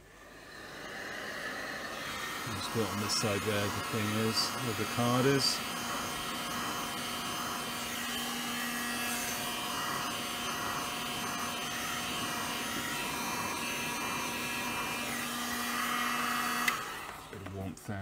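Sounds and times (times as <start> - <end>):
hot air gun blowing: 0.0 - 17.4.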